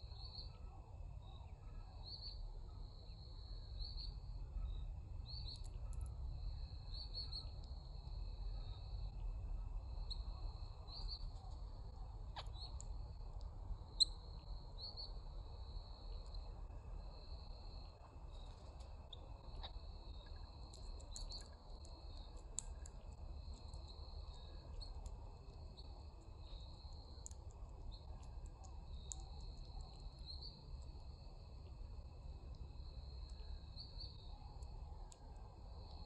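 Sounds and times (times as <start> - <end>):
low background rumble: 0.0 - 36.0.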